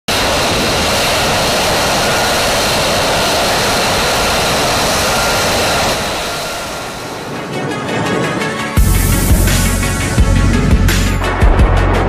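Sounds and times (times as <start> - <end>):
jet engine rush with high whine: 0.1 - 11.3.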